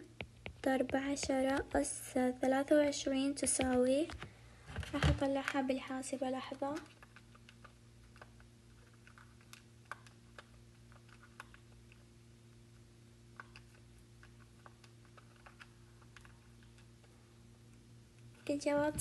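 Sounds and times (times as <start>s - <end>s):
low steady hum: 0.0s - 19.0s
calculator keys tapping: 0.1s - 2.6s, 3.4s - 4.3s.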